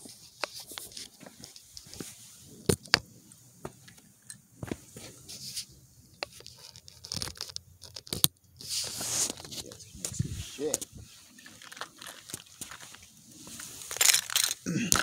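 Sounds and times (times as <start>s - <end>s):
phone handling clicks and scrapes: 0.3s - 3.0s, 3.8s - 15.0s
fabric rustling: 8.6s - 14.5s.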